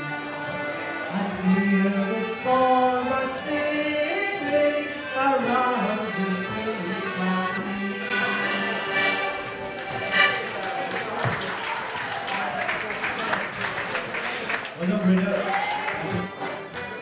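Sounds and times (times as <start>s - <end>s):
button accordions playing: 0.0s - 11.2s, 16.1s - 17.0s.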